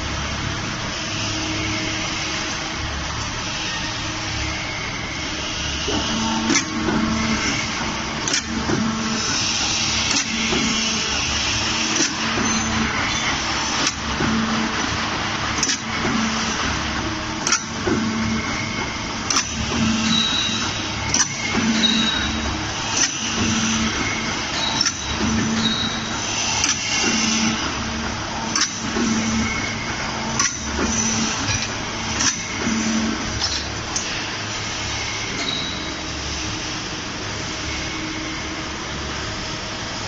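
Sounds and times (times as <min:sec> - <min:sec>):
steady machine hum: 0:00.0 - 0:40.0
punching machine sharp clack: 0:05.9 - 0:33.7.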